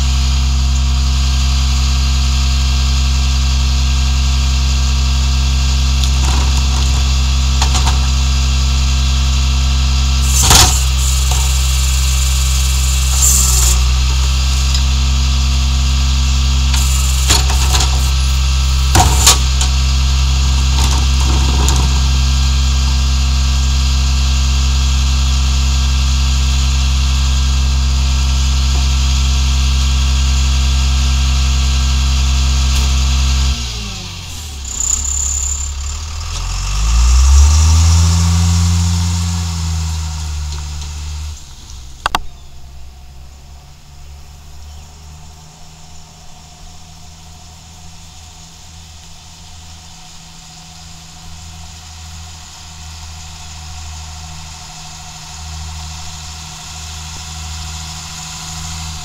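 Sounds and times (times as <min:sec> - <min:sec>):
garbage truck diesel engine: 0:00.0 - 0:59.0
hydraulic packer compacting: 0:04.2 - 0:42.4
sharp metallic clanks: 0:16.7 - 0:19.9.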